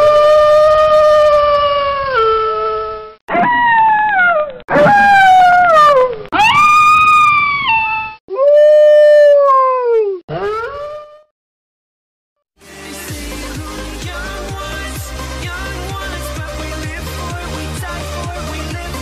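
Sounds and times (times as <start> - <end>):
wolf howling: 0.0 - 11.1.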